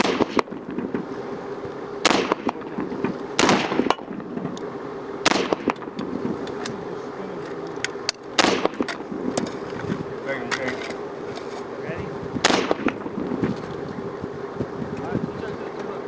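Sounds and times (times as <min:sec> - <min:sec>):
rifle shots with echo: 0:00.0 - 0:01.1, 0:02.0 - 0:04.6, 0:05.2 - 0:06.0, 0:08.4 - 0:09.2, 0:12.4 - 0:13.3.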